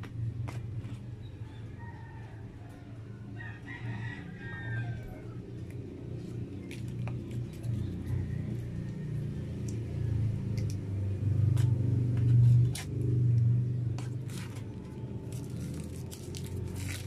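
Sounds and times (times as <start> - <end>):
food wrapping clicks: 14.2 - 17.0.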